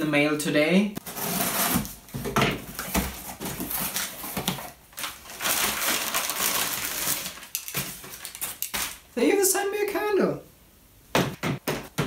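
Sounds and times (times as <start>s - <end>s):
wrapping paper crinkling: 2.7s - 9.2s.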